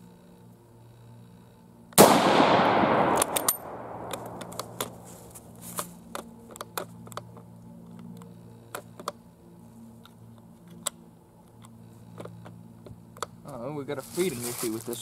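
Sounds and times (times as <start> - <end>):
metallic rifle bolt clicks: 2.0 - 5.0
rifle shot with echo: 2.0 - 5.0.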